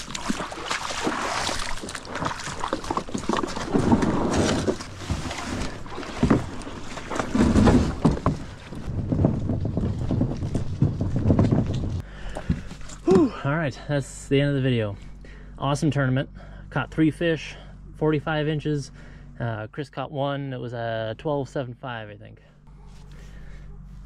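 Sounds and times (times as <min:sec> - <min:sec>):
water swishing along hull: 0:00.0 - 0:12.9
kayak knocks and rattles: 0:00.0 - 0:13.3.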